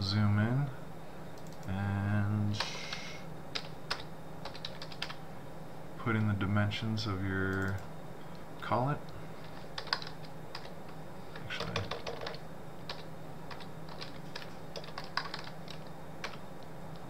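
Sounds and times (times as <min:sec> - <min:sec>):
typing on computer keyboard: 0:03.6 - 0:05.2, 0:09.8 - 0:10.7, 0:11.6 - 0:16.4.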